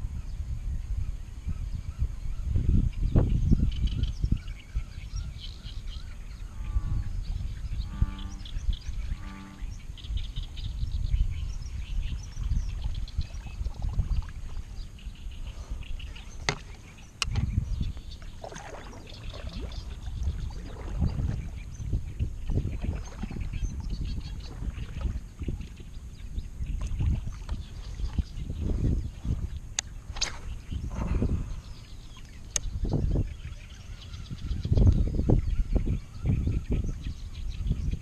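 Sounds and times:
wind rumble on microphone: 0.0 - 38.0
birds chirping: 1.5 - 38.0
honking bird calls: 7.8 - 10.1.

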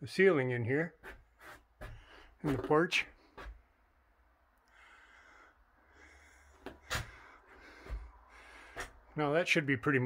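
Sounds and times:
faint breathing: 1.8 - 2.4, 4.6 - 9.2.

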